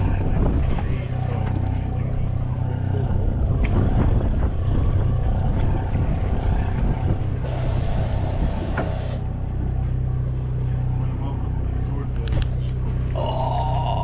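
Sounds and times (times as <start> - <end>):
wind buffeting microphone: 0.0 - 10.7
boat engine humming: 0.0 - 14.0.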